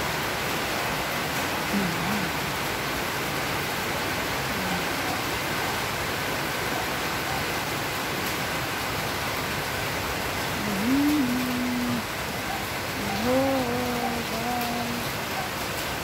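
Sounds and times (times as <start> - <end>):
steady rain falling: 0.0 - 16.0
person's held vocal sound: 1.7 - 2.4, 4.5 - 5.0, 10.6 - 12.3, 13.0 - 15.2.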